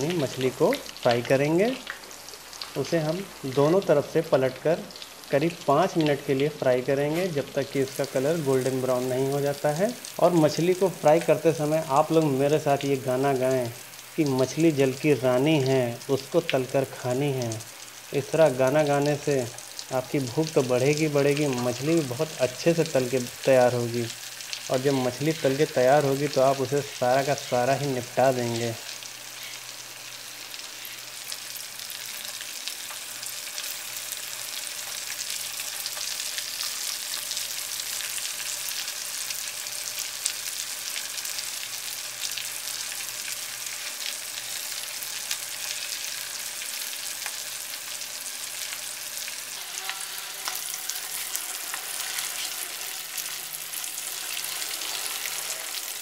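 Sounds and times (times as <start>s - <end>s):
fish deep-frying in oil: 0.0s - 56.0s
spoon stirring in oil: 49.4s - 56.0s.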